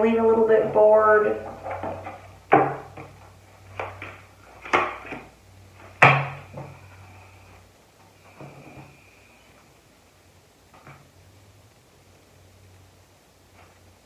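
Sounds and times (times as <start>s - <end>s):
cards knocking on hard surface: 1.8s - 3.2s.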